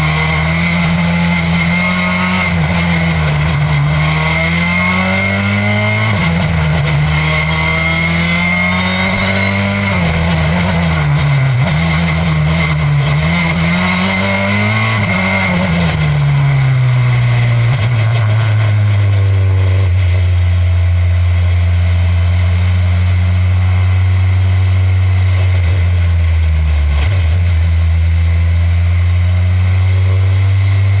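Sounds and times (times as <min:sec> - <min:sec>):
rally car engine revving: 0:00.0 - 0:31.0.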